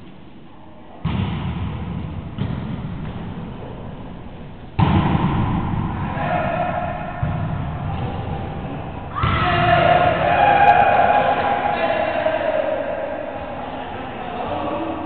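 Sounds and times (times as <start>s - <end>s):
volleyball smack with echo: 1.0s - 3.4s, 4.8s - 6.2s.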